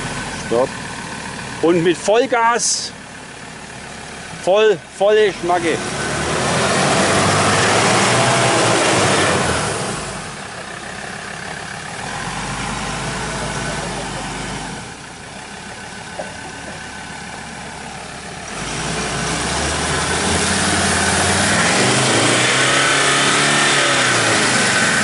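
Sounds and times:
truck engine revving in mud: 5.3s - 10.4s, 12.0s - 15.0s, 18.4s - 25.0s.

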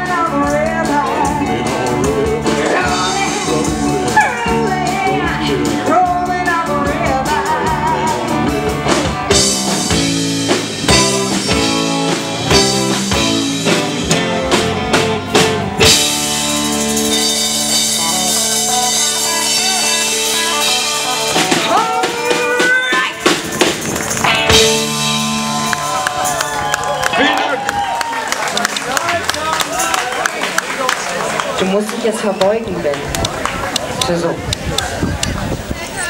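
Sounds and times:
person singing: 0.0s - 10.1s
live rock band playing: 0.0s - 30.7s.

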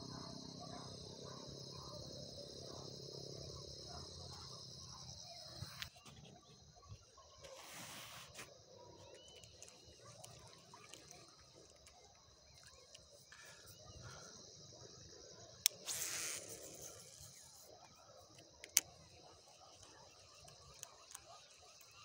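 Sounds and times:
crickets chirping: 0.0s - 22.0s
sharp clicks: 15.6s - 16.2s, 18.3s - 19.1s.

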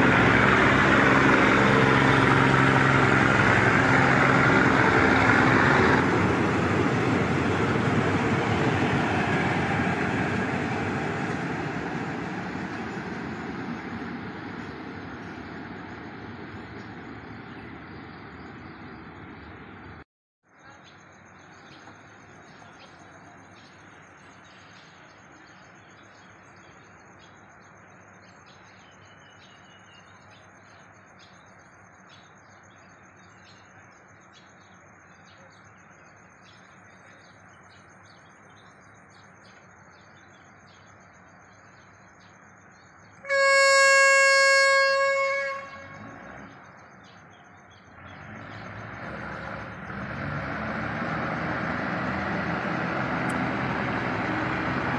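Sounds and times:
train horn blast: 0.0s - 8.6s, 43.2s - 46.7s
birds chirping: 0.0s - 20.0s
train engine noise: 0.0s - 20.0s, 41.1s - 54.9s.

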